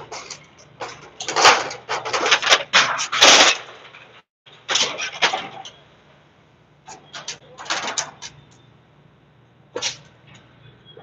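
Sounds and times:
loud bangs and clatter: 0.0 - 5.7.

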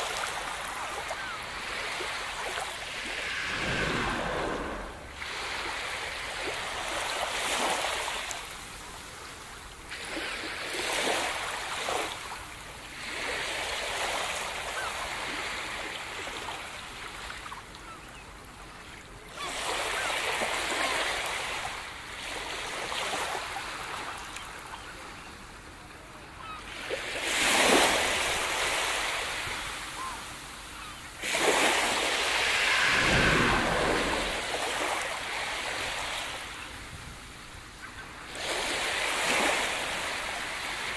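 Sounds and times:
ocean waves breaking on beach: 0.0 - 17.4, 26.4 - 40.9.

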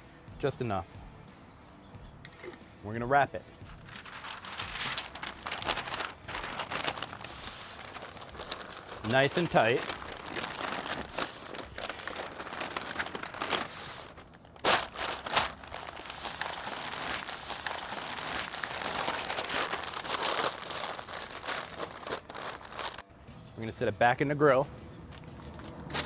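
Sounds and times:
butcher paper crinkling: 3.7 - 23.0
paper crackles: 3.7 - 23.0.

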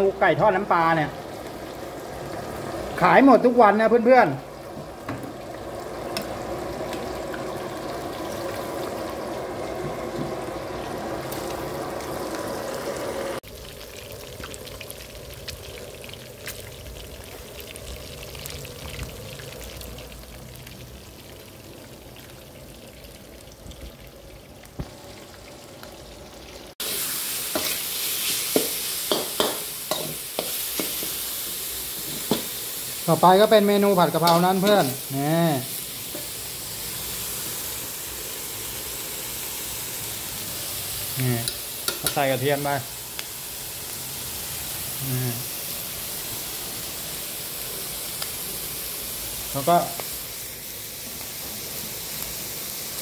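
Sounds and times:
chicken deep-frying in bubbling oil: 0.0 - 53.0
pork sizzling in a wok: 0.0 - 53.0
metal spatula scraping wok: 27.4 - 31.4.

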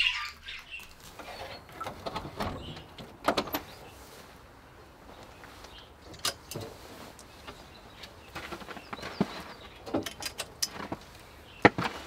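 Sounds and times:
wire-mesh door rattling and knocking: 1.6 - 3.7.

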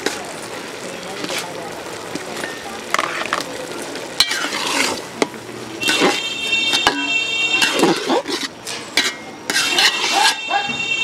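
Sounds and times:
rice boiling: 0.0 - 10.5
metal spatula scraping pot: 4.2 - 5.2, 5.8 - 10.5.

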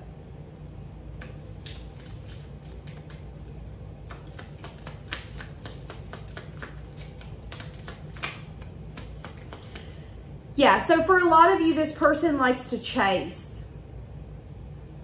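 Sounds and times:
steady low hum: 0.0 - 15.0
cards being shuffled: 1.1 - 10.2.

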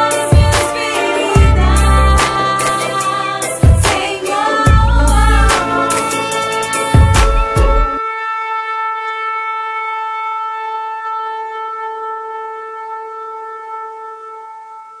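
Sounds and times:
rap beat: 0.0 - 8.0.

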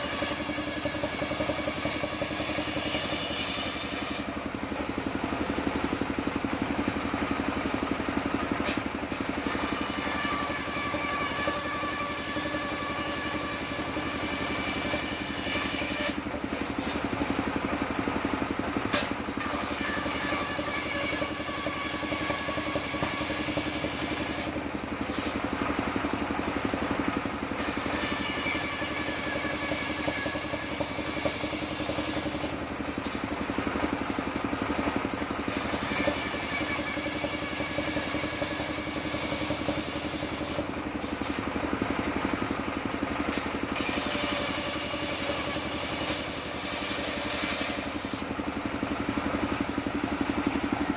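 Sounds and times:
table saw ripping wood: 0.0 - 4.3, 8.6 - 17.2, 18.9 - 25.4, 27.6 - 33.3, 35.5 - 41.4, 43.3 - 48.3
saw blade ringing whine: 0.0 - 50.9.

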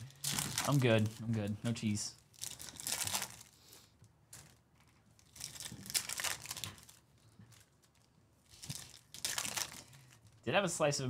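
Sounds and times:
foil wrappers crinkling: 0.0 - 10.4.

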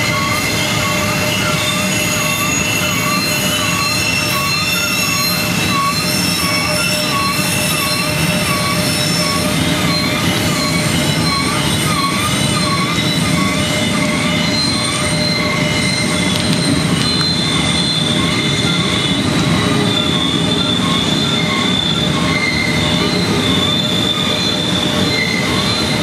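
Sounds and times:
pulsing wavering tone: 0.0 - 26.0
train wheels rumbling on rail: 0.0 - 26.0
wheel flange squeal: 0.0 - 26.0.

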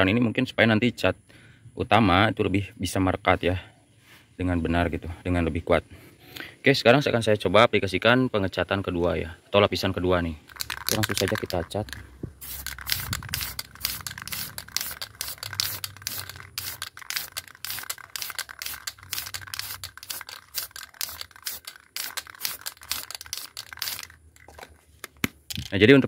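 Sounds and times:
aerosol spray can hissing: 10.5 - 24.2.

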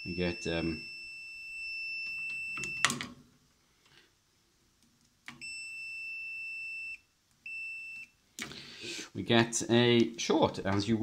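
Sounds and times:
multimeter continuity beep: 0.0 - 3.0, 5.4 - 8.2.

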